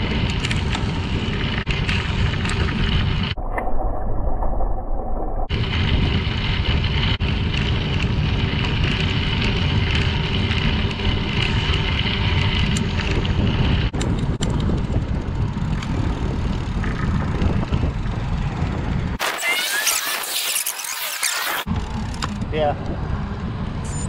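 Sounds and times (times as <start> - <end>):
bicycle tyres rolling on gravel: 0.0 - 3.4, 5.5 - 19.2
wind on microphone: 0.0 - 21.0.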